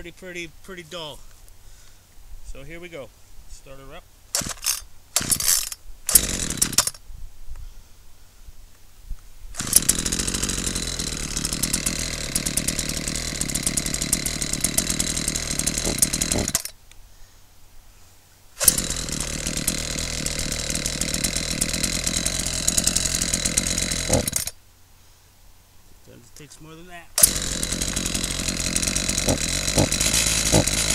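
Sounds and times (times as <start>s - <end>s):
chainsaw cutting log: 4.4s - 7.0s, 9.6s - 16.8s, 18.6s - 24.6s, 27.2s - 30.9s.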